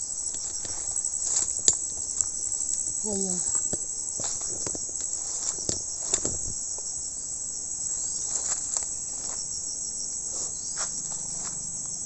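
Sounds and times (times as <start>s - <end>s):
insects buzzing: 0.0s - 12.0s
clicks and rustles: 0.2s - 6.6s.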